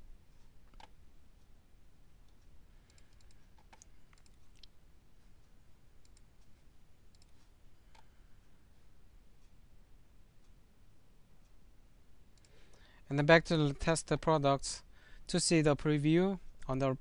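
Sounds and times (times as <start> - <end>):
low room hum: 0.0 - 17.0
computer mouse clicks: 0.6 - 1.0, 2.3 - 4.8, 6.0 - 6.3, 7.1 - 8.1.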